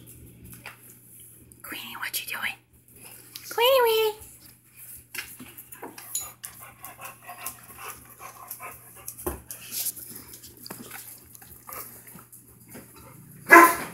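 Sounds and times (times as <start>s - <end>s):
dog panting: 5.9s - 10.2s.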